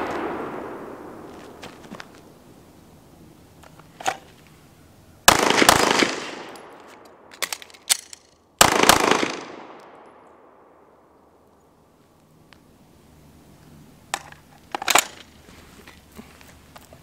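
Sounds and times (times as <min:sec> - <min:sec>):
rapid gunfire with echo: 0:05.3 - 0:06.6, 0:08.6 - 0:09.8.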